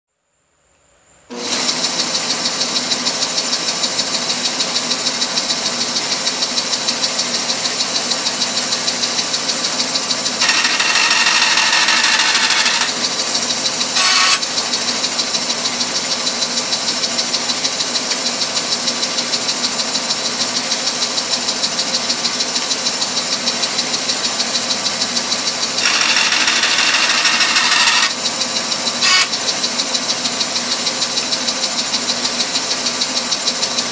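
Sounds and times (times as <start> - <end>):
bandsaw running: 9.0 - 16.1, 25.1 - 30.1
bandsaw cutting metal: 10.1 - 15.0, 25.5 - 29.6.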